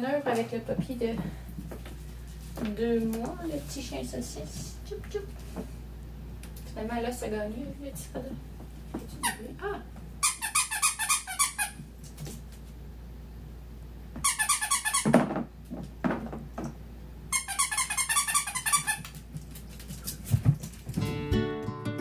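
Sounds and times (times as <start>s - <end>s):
dog toy squeaking: 10.2s - 11.8s, 14.2s - 15.2s, 17.3s - 19.1s.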